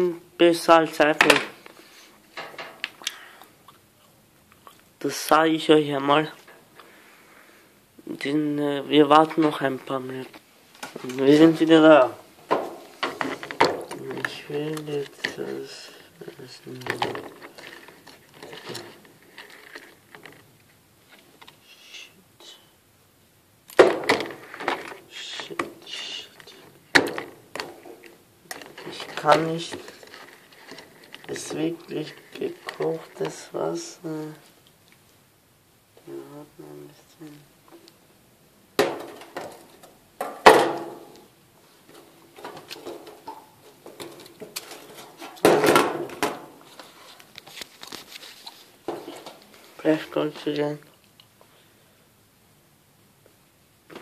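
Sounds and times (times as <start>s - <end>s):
small knocks and handling rustles: 1.1s - 3.0s, 9.1s - 21.6s, 23.8s - 35.1s, 38.8s - 51.5s.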